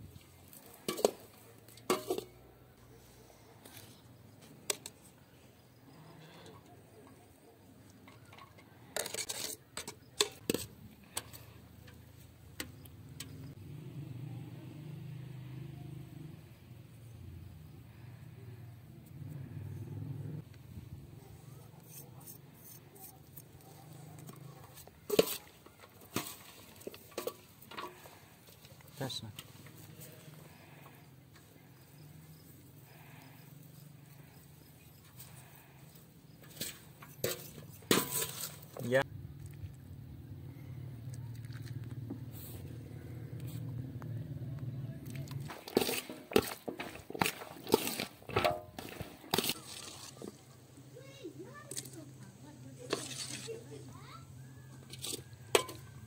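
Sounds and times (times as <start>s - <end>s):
metal ladle clinking on steel bowl: 55.1s - 55.9s.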